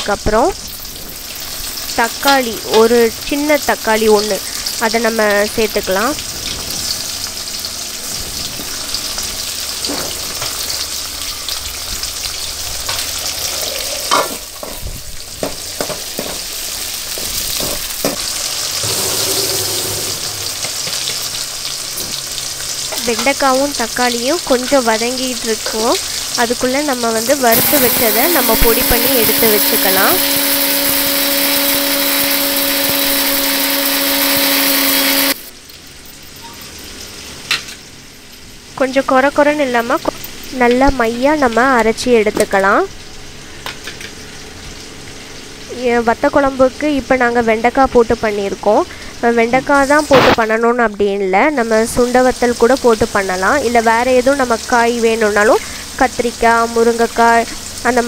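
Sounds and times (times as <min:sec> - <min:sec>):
vegetables sizzling in hot oil: 0:00.0 - 0:58.0
mixer grinder grinding spices: 0:17.1 - 0:21.0, 0:27.3 - 0:35.5
motor hum: 0:18.6 - 0:20.9, 0:27.0 - 0:35.7.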